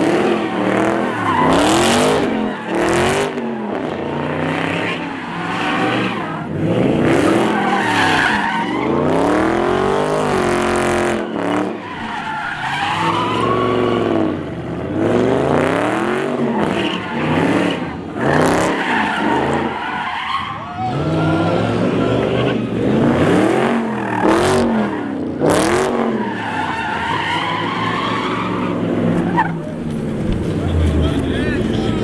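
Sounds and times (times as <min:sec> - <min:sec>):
car engine revving: 0:00.0 - 0:32.0
tyres squealing: 0:10.9 - 0:14.2, 0:26.1 - 0:32.0.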